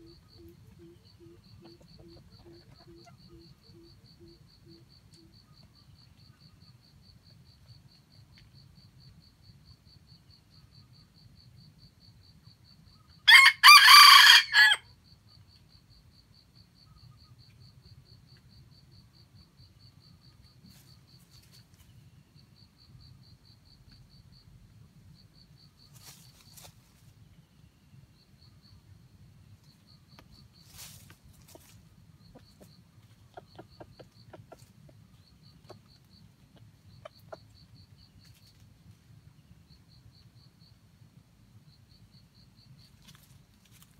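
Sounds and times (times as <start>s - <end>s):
rooster crowing: 13.3s - 14.9s.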